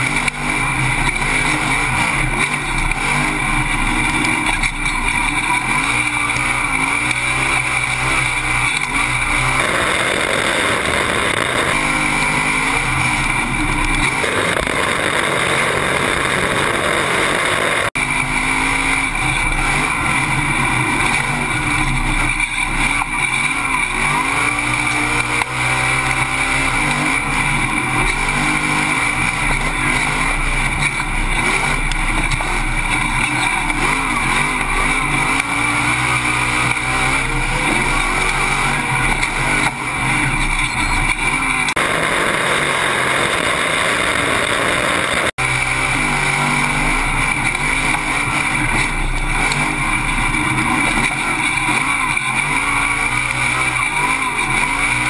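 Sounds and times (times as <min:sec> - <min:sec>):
race truck engine revving: 0:00.0 - 0:55.0
rushing noise: 0:38.5 - 0:47.3.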